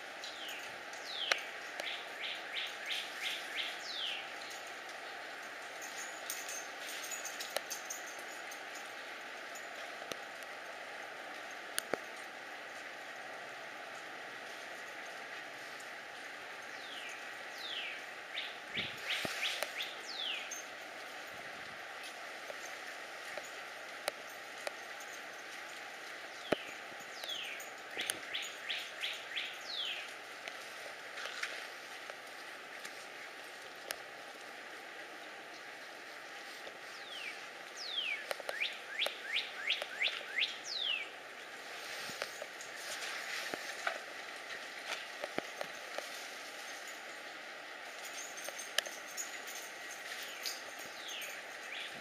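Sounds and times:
steady background hiss: 0:00.0 - 0:52.0
songbird whistling: 0:37.0 - 0:41.1
bird calling: 0:37.0 - 0:41.2.

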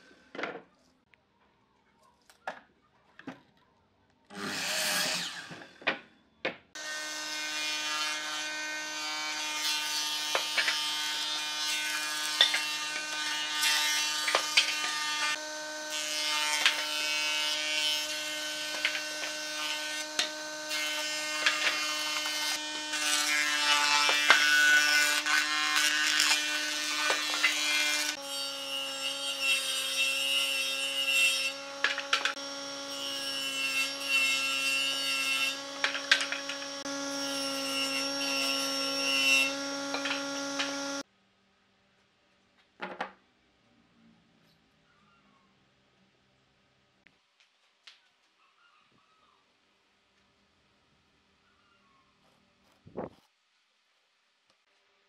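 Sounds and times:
miter saw cutting board: 0:04.3 - 0:05.9, 0:06.8 - 0:41.0
wood being fed and cut: 0:04.3 - 0:06.0, 0:06.8 - 0:41.0
woodworking machine motor hum: 0:31.4 - 0:41.0.

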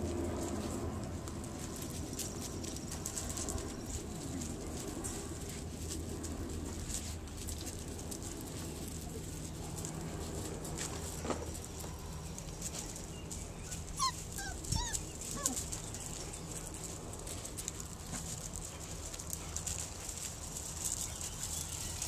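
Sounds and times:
small paws on gravel: 0:00.0 - 0:22.0
puppies whimpering and yipping: 0:13.2 - 0:16.8.

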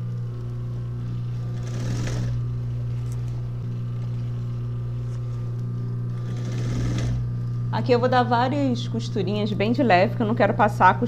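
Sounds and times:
sewing machine motor humming: 0:00.0 - 0:10.3.

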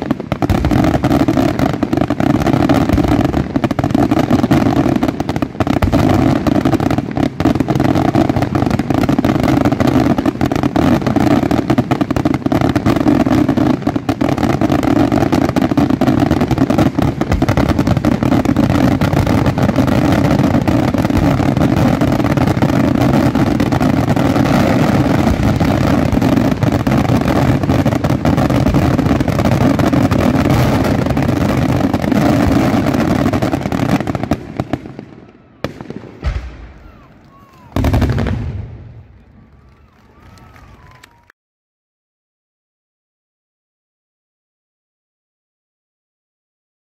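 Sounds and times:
fireworks bangs and crackling: 0:00.0 - 0:41.3.

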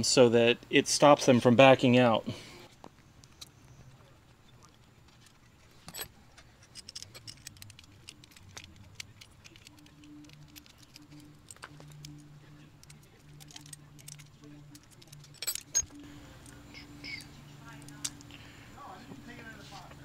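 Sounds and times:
low hum: 0:02.3 - 0:20.0
hex key and brake caliper rattling: 0:05.0 - 0:16.6.

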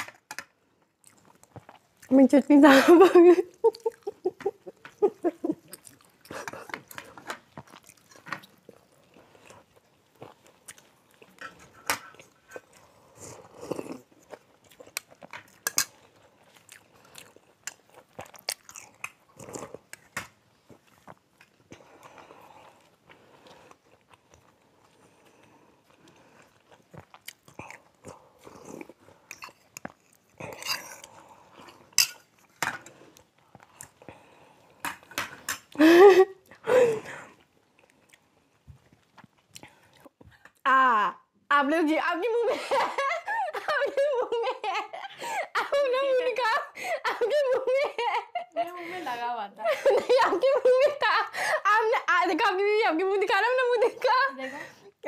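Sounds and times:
chewing and mouth noises: 0:00.6 - 0:02.4, 0:03.4 - 0:35.8, 0:36.4 - 0:40.7.

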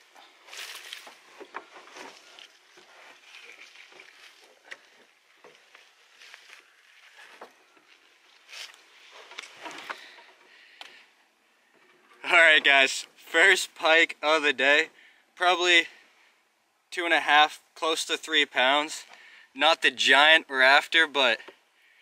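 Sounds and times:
rustling: 0:00.0 - 0:12.8.

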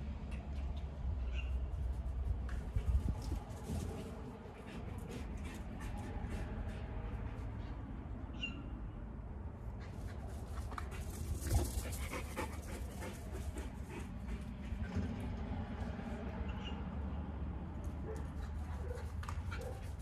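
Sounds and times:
dog panting: 0:04.4 - 0:07.9, 0:09.8 - 0:15.3.

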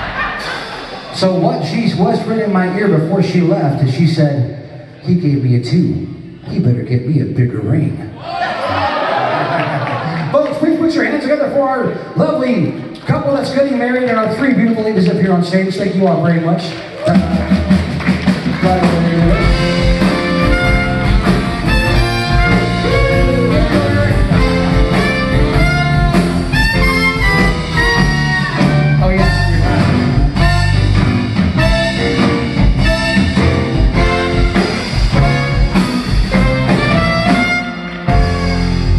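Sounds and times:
drums: 0:00.0 - 0:04.4, 0:12.4 - 0:38.9
live band playing: 0:17.0 - 0:38.9
electric guitar: 0:17.2 - 0:38.9
saxophones: 0:19.2 - 0:38.9.

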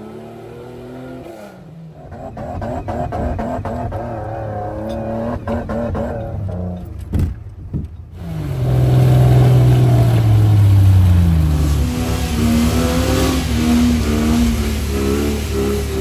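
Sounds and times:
engine revving in mud: 0:00.0 - 0:06.9, 0:08.2 - 0:16.0
car lurching knocks: 0:06.9 - 0:08.0.

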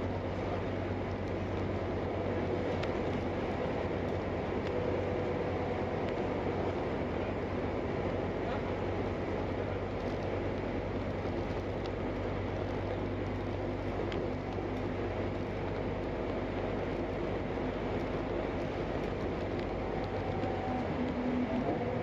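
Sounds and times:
bus engine and road noise: 0:00.0 - 0:22.0.

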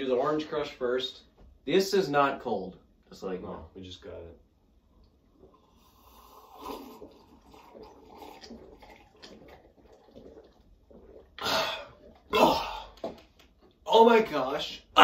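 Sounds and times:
people gulping and swallowing: 0:04.9 - 0:13.9.

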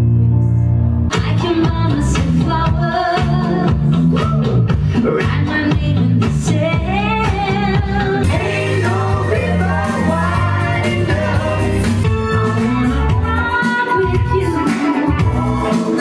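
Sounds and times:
amplified pop-rock backing music: 0:00.0 - 0:16.0
woman singing into microphone: 0:01.1 - 0:03.9, 0:05.0 - 0:08.4, 0:13.1 - 0:15.3.

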